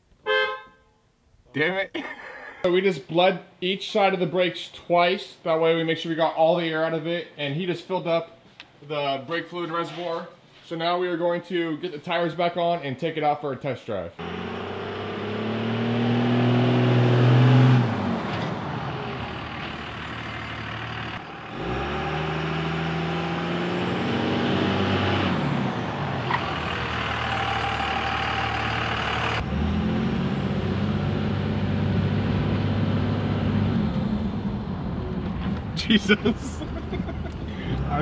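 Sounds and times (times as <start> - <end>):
diesel truck engine: 14.2 - 38.0.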